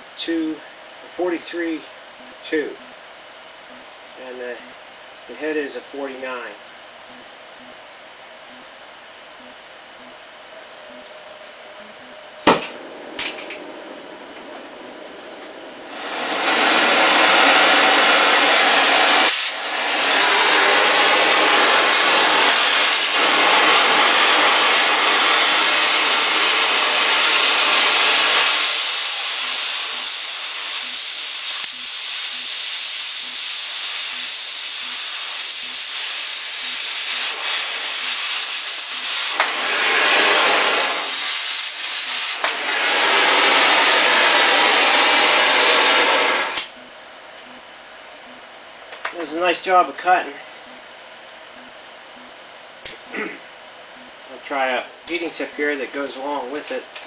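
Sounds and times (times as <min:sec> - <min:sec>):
cutting torch flame hissing: 0:12.4 - 0:47.6.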